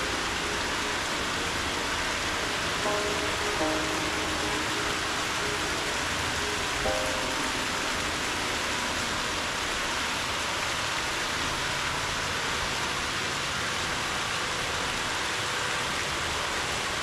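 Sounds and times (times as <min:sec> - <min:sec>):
waterfall splashing into pond: 0:00.0 - 0:17.0.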